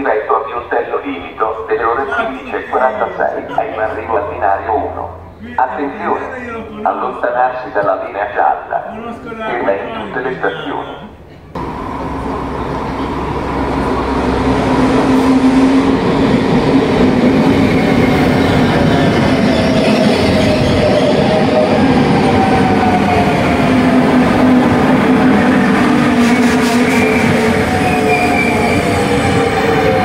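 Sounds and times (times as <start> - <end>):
train wheels rumbling on rails: 11.3 - 30.0.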